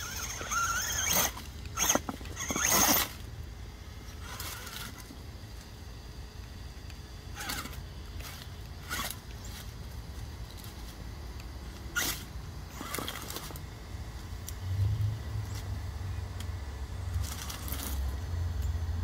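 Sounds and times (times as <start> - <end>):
tires scraping on rocks: 0.0 - 5.3, 7.3 - 13.8, 17.1 - 18.2
low motor rumble: 0.0 - 19.0.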